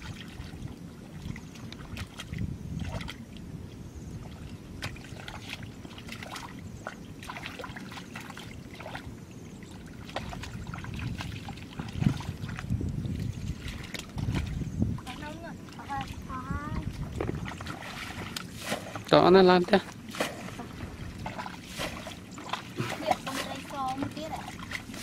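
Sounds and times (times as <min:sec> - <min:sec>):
low steady rumble: 0:00.0 - 0:25.0
hands splashing in muddy water: 0:17.1 - 0:19.1, 0:19.9 - 0:25.0.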